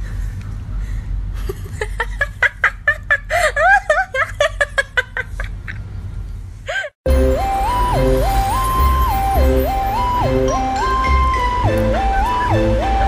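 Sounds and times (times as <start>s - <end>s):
person giggling: 1.4s - 5.8s.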